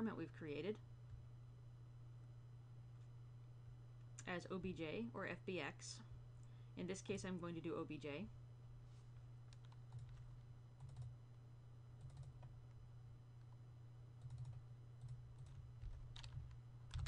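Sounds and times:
low electrical hum: 0.0s - 17.0s
computer mouse clicks: 9.5s - 11.1s, 12.0s - 12.5s.

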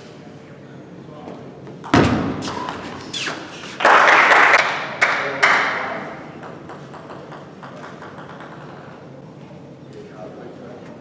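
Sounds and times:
table tennis ball bouncing: 1.8s - 3.8s, 6.2s - 9.2s.

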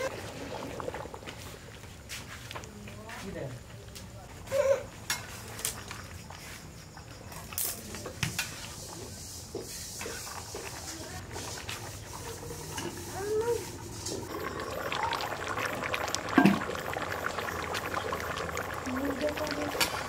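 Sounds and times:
curry bubbling in a pot: 0.0s - 2.8s, 7.9s - 20.0s.

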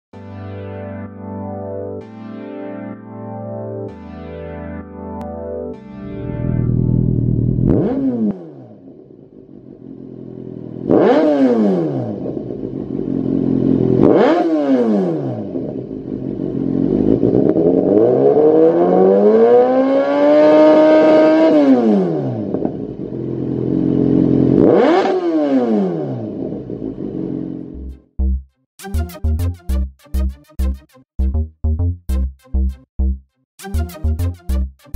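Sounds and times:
motorcycle engine revving: 6.2s - 28.0s.

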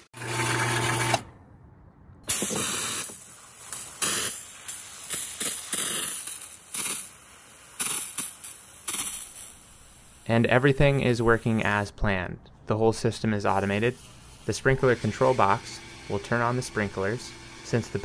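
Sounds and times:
hose spray hissing onto grass: 2.3s - 11.6s.

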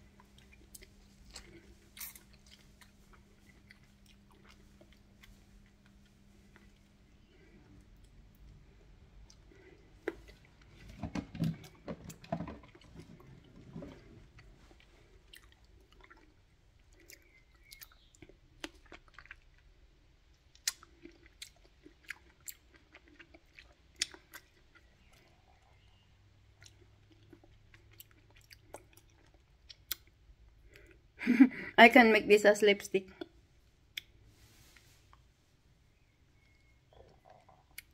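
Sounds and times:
person chewing cherries: 0.0s - 31.2s, 33.2s - 35.3s, 36.0s - 37.9s.

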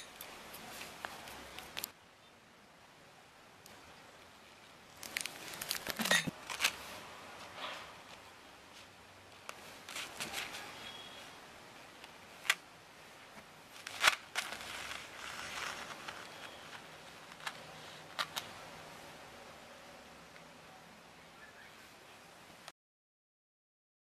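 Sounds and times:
paper rustling: 5.0s - 8.2s, 9.5s - 11.1s, 13.7s - 18.5s.

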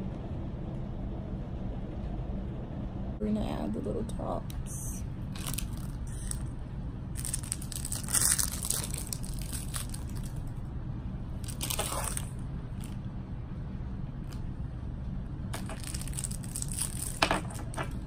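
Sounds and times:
steady low rumble: 0.0s - 18.0s
candy crinkling and crunching: 5.3s - 6.5s, 7.1s - 10.6s, 11.4s - 13.0s, 15.6s - 18.0s.

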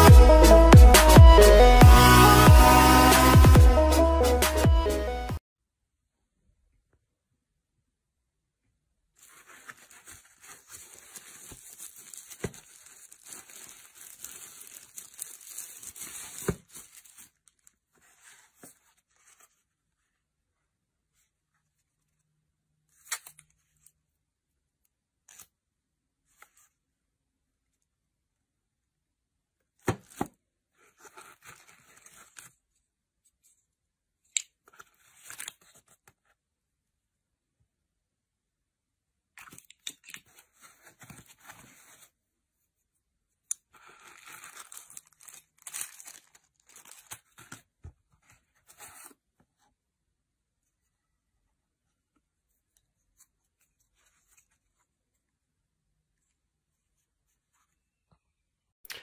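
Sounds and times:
plastic sheet crinkling: 9.2s - 19.6s, 43.8s - 47.6s.

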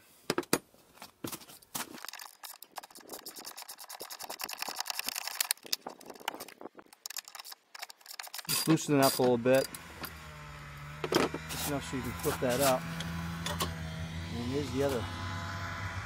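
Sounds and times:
wrenches clinking on metal: 2.0s - 10.2s
socket ratchet clicking: 2.1s - 10.2s.

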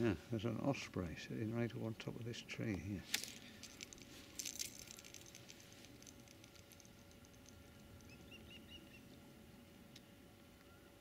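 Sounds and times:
faint ticks: 2.7s - 8.4s
bird chirps: 7.9s - 9.2s.

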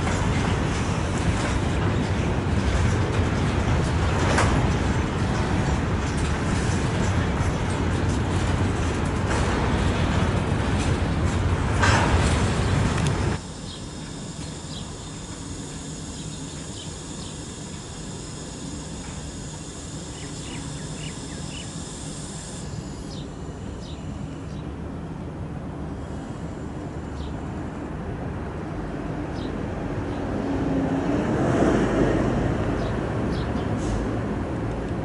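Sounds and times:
freight wagons rumbling past: 0.0s - 13.4s
electric locomotive hum: 0.0s - 35.0s
train wheel screech: 13.4s - 24.6s.

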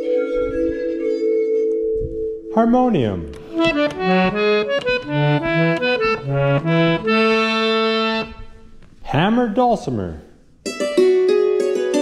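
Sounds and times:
harmonium playing: 3.3s - 8.8s.

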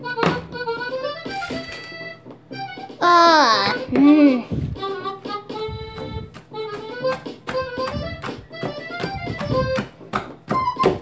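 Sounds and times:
tapping beat: 3.7s - 11.0s.

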